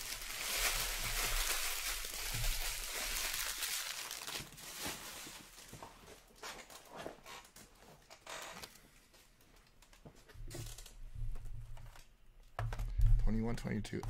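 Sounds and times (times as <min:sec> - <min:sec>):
card packaging crinkling: 0:00.0 - 0:05.7.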